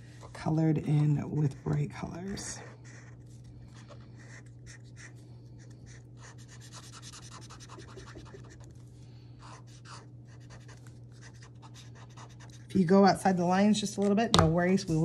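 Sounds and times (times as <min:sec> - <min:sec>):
marker scratching on paper: 0:03.8 - 0:05.1, 0:05.9 - 0:08.7, 0:09.4 - 0:12.7.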